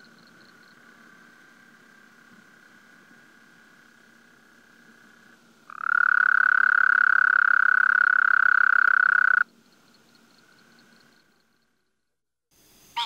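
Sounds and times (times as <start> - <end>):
toad trilling: 5.7 - 9.5.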